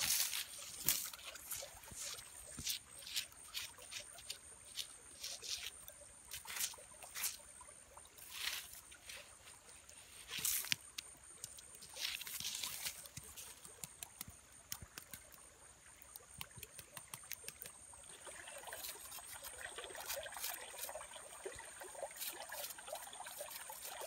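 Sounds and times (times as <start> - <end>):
twigs and leaves crackling: 0.0 - 7.4, 8.2 - 15.4, 18.6 - 21.1, 22.0 - 24.0.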